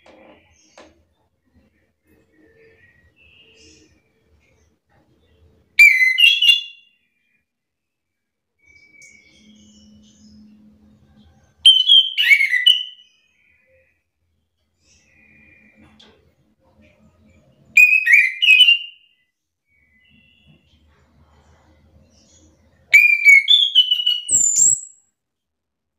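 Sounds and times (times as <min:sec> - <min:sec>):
thrush singing whistled notes: 0:08.6 - 0:10.5, 0:17.8 - 0:20.6, 0:22.9 - 0:25.0
faint soft bird notes: 0:13.0 - 0:18.2, 0:19.2 - 0:25.0.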